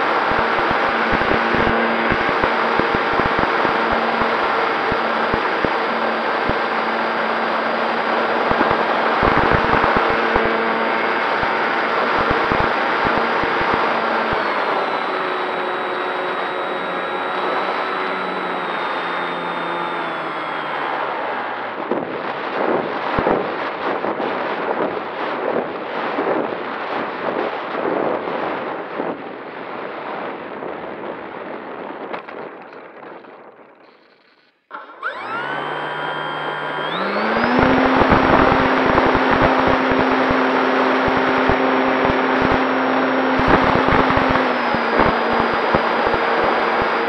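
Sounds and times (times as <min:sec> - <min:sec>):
electric motor whining: 0:00.0 - 0:22.0, 0:33.9 - 0:47.0.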